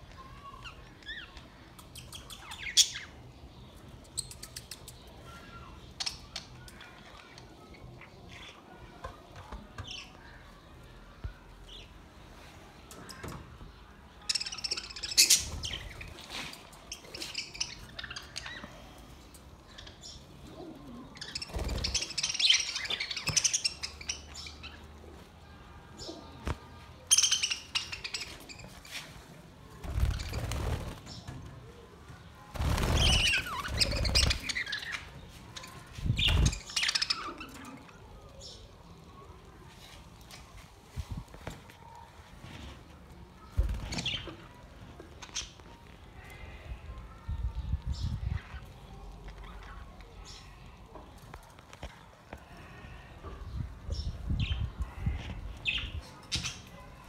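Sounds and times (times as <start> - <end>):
wings flapping: 29.8 - 31.1, 32.5 - 34.6.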